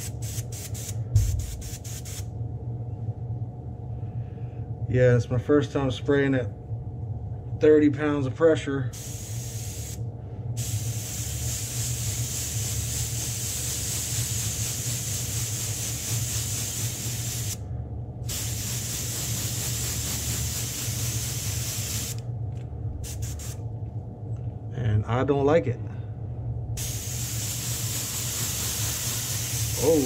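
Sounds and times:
airbrush hissing: 0.0s - 2.3s, 9.0s - 10.0s, 10.6s - 17.6s, 18.3s - 22.2s, 23.0s - 23.6s, 26.8s - 30.0s
steady low hum: 0.0s - 30.0s.

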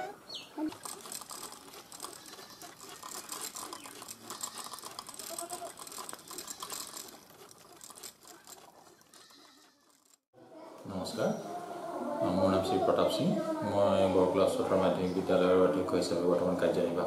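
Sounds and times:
yarn winding wheel rattling: 0.6s - 10.3s.

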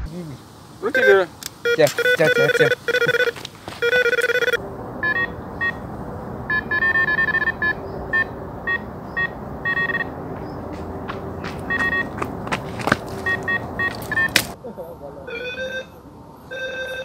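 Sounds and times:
bite alarm beeping: 0.8s - 10.2s, 11.5s - 12.2s, 13.1s - 14.6s
higher-toned alarm beeps: 0.9s - 5.8s, 6.5s - 10.1s, 11.7s - 12.2s, 13.2s - 14.4s.

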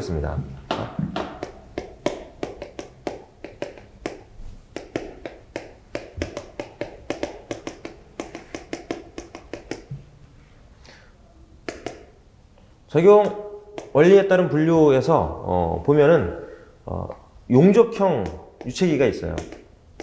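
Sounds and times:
chalk tapping on chalkboard: 0.7s - 10.0s, 11.6s - 12.2s, 13.2s - 14.0s, 18.1s - 20.0s.

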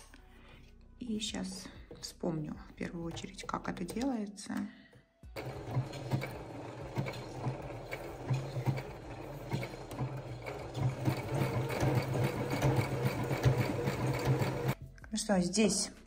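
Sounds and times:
sewing machine stitching: 5.4s - 14.8s.

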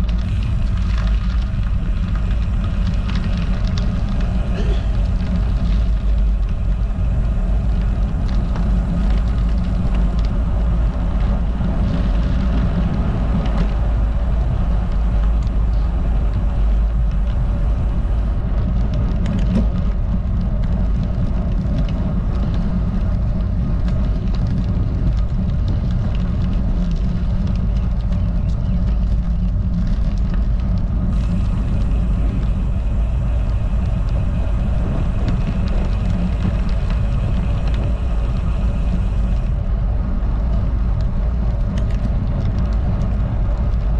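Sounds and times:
tyres rolling on rough asphalt: 0.0s - 43.9s
wind rumble on microphone: 0.0s - 43.9s.

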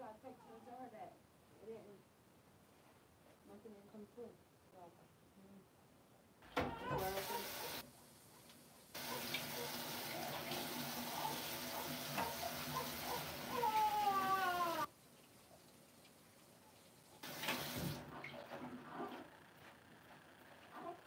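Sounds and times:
cat meowing: 13.5s - 14.9s.

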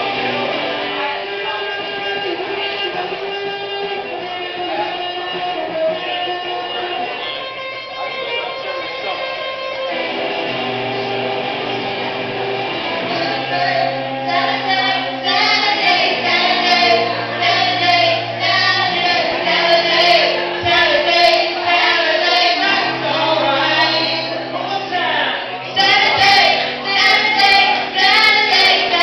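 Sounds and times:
live band playing: 0.0s - 29.0s
person singing: 13.0s - 29.0s.

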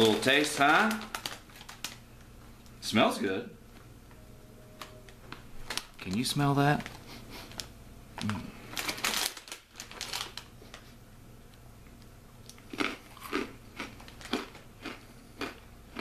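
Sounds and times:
foil snack bag crinkling: 0.0s - 2.1s, 5.3s - 11.0s, 12.8s - 15.5s
crunchy chewing: 12.4s - 16.0s.

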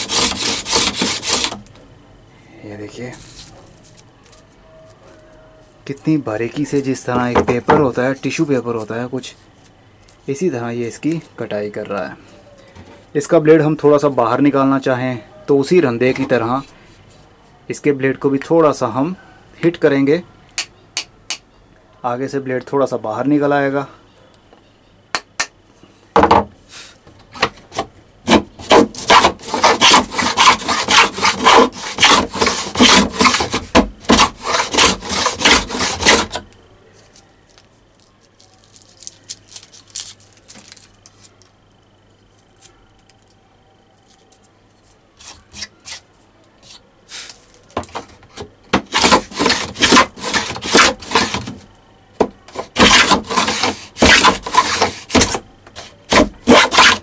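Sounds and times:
plane shaving wood: 0.0s - 1.6s, 28.3s - 36.4s, 48.8s - 51.6s, 52.5s - 57.0s.

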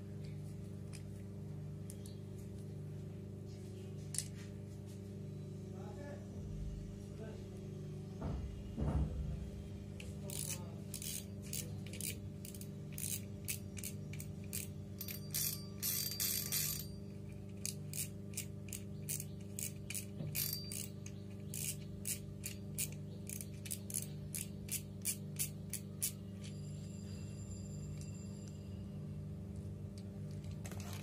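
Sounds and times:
fishing reel clicking: 10.2s - 16.9s, 17.6s - 26.5s.

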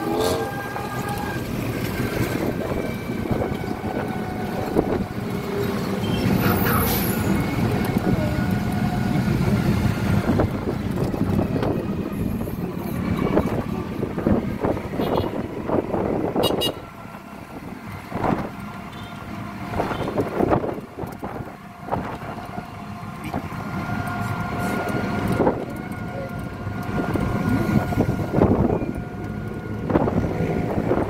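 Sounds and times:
wind on microphone: 0.0s - 5.9s, 7.2s - 16.9s, 26.6s - 31.0s
road traffic noise: 0.0s - 31.0s.

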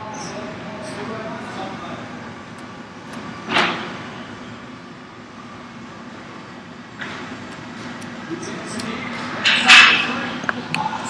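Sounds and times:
arena crowd noise: 0.0s - 3.6s, 7.0s - 11.0s.

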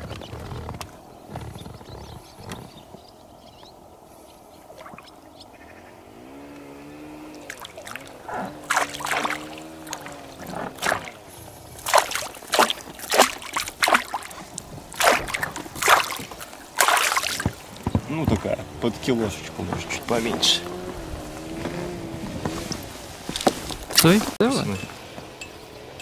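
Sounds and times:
fish thrashing splashes: 7.3s - 20.2s.

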